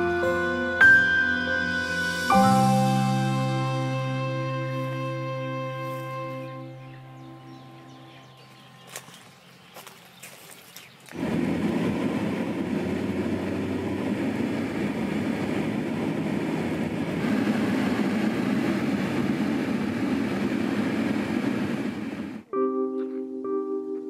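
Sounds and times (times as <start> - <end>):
car engine and tyre noise: 8.2 - 22.5
low hum: 11.1 - 22.5.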